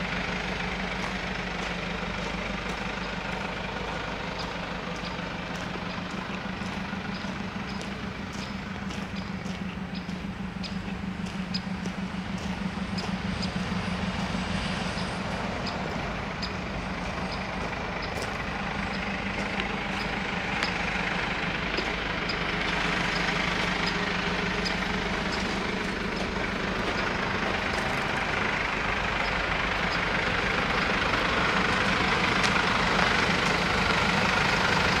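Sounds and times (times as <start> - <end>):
van engine idling: 0.0 - 35.0.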